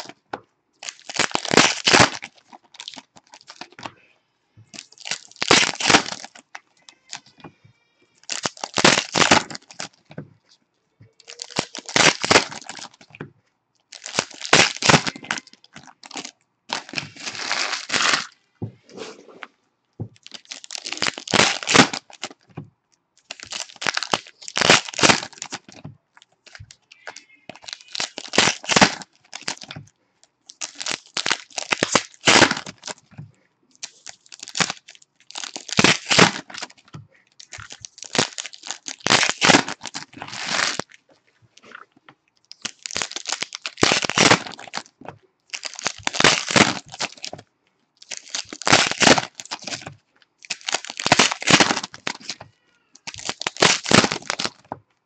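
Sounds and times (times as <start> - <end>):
foil wrappers torn and crinkled: 0.8 - 3.8, 4.8 - 7.4, 8.2 - 10.1, 11.2 - 13.1, 13.9 - 18.4, 20.2 - 22.4, 23.2 - 25.8, 26.4 - 29.8, 30.5 - 33.1, 33.8 - 41.0, 42.5 - 47.4, 48.0 - 52.4, 53.0 - 54.6.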